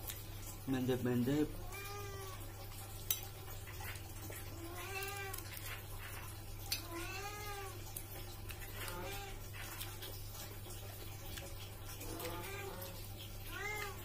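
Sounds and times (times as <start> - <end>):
cat meowing: 1.6 - 2.5, 4.5 - 5.7, 6.8 - 7.9, 8.7 - 9.5, 12.0 - 14.0.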